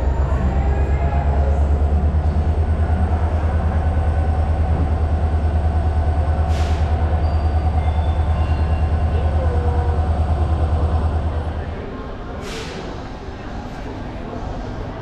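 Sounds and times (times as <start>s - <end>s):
train engine rumbling: 0.0s - 15.0s.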